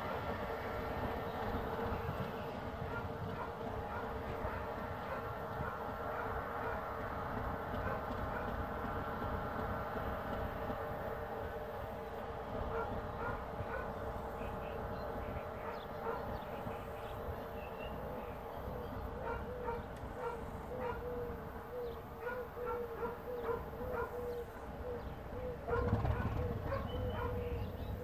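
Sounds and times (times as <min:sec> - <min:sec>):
dog barking: 0:02.9 - 0:06.8, 0:07.8 - 0:08.6, 0:12.7 - 0:14.0, 0:15.6 - 0:16.4, 0:19.2 - 0:21.3, 0:22.2 - 0:24.4, 0:25.5 - 0:27.5
faint birdsong chirps: 0:12.0 - 0:28.0.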